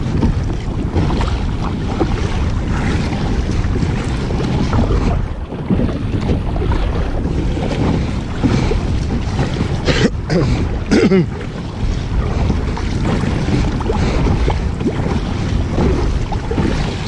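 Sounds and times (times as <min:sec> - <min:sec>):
sea waves: 0:00.0 - 0:17.0
short water splashes: 0:00.0 - 0:17.0
wind buffeting microphone: 0:00.0 - 0:17.0.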